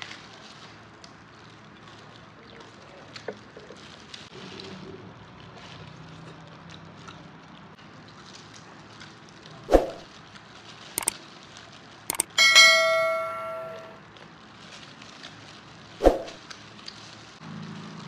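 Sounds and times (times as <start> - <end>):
sharp clicks: 12.1 - 13.9
bell-like metallic ring: 12.1 - 14.0.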